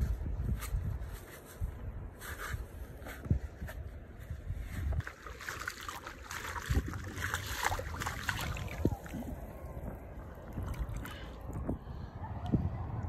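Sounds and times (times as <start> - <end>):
water splashing around feet: 4.9 - 11.6.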